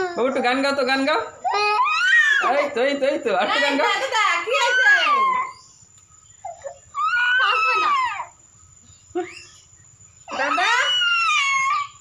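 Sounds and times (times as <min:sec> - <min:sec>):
baby wailing: 0:00.0 - 0:00.8, 0:01.4 - 0:02.8, 0:03.5 - 0:05.5, 0:06.5 - 0:08.4, 0:10.3 - 0:12.0.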